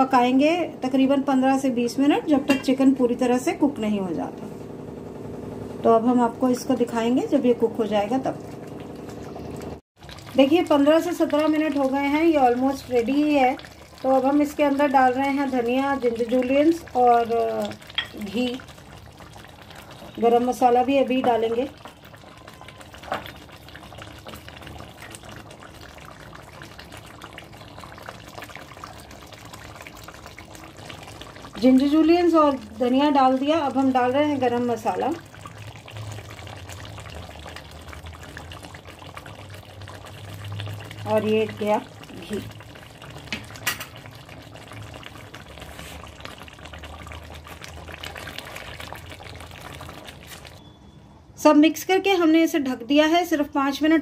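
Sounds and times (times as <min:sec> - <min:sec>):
curry gravy bubbling in a pan: 0:07.6 - 0:50.6.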